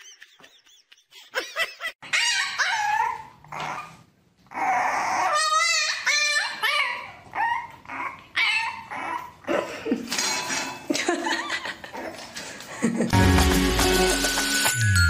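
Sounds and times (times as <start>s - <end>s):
puppies whining and yipping: 2.0s - 9.5s.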